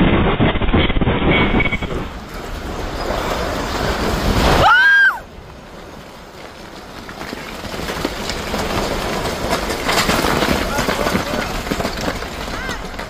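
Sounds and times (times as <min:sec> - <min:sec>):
earthquake rumble: 0:00.0 - 0:13.0
debris knocking: 0:05.6 - 0:13.0.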